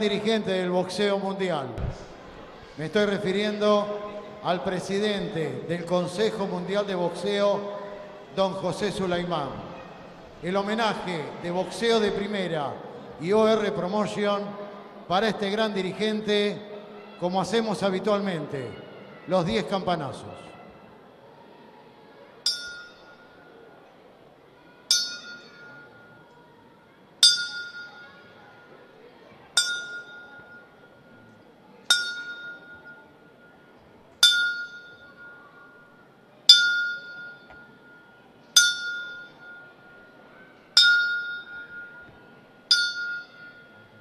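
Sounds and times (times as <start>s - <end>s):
boxing ring bell strokes: 22.5s - 23.2s, 31.9s - 35.9s, 36.5s - 40.0s, 40.8s - 42.1s, 42.7s - 44.0s.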